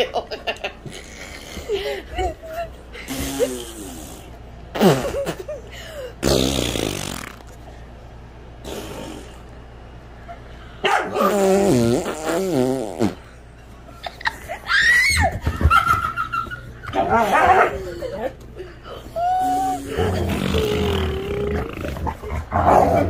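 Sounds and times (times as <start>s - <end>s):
fart noises: 3.1s - 5.4s, 6.2s - 7.6s, 8.6s - 9.4s, 11.2s - 13.3s, 19.8s - 22.2s.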